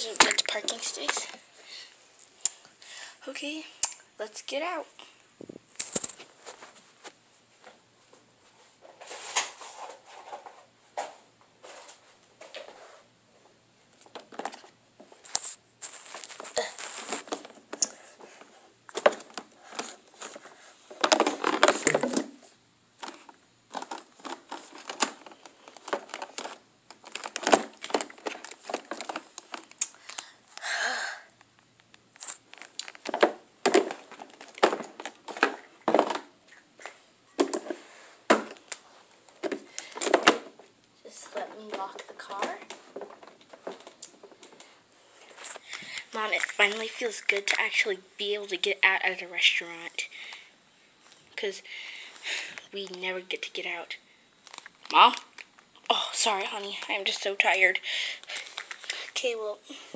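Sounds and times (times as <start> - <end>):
handling rustling clicks and knocks: 14.0 - 29.9, 31.9 - 46.8.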